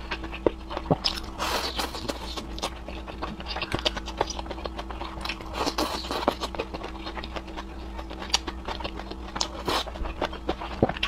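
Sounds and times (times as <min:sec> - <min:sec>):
person chewing and slurping noodles: 0:00.0 - 0:11.0.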